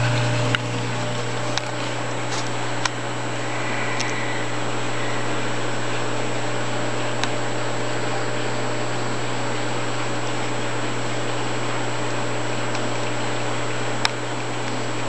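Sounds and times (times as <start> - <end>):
aquarium pumps humming: 0.0 - 15.0.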